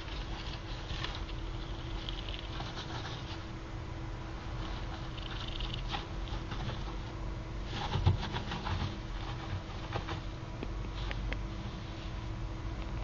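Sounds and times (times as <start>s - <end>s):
gerbil scratching and nibbling: 0.0s - 3.5s, 4.5s - 10.3s.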